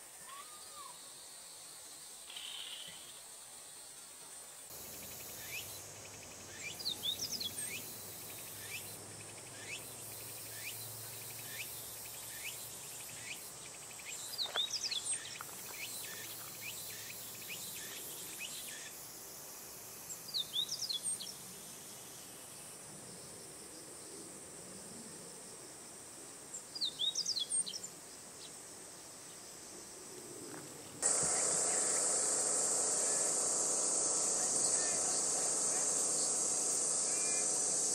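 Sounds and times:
loud steady hiss: 0.0s - 22.8s, 31.0s - 37.9s
bird chirping song: 4.7s - 18.8s
high insect buzz: 4.7s - 22.6s, 31.0s - 37.9s.

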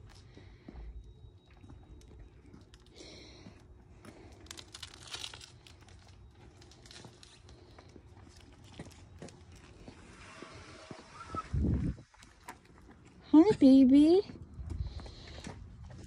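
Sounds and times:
rustling and crackling handling: 4.0s - 10.5s.

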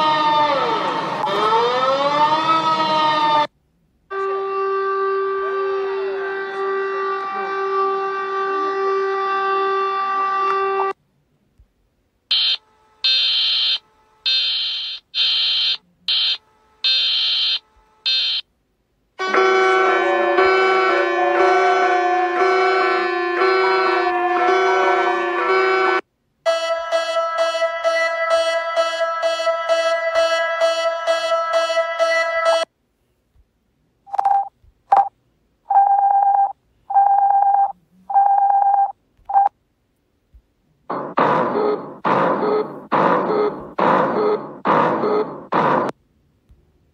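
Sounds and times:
telephone beeps: 34.1s - 35.1s, 35.7s - 39.5s, 40.9s - 45.5s
electronic alert beeps: 40.9s - 45.5s.

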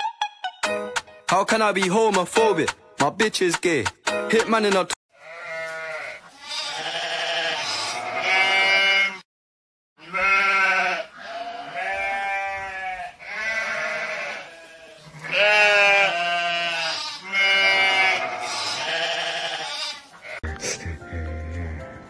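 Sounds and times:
sheep bleating: 5.2s - 9.2s, 10.0s - 20.6s.

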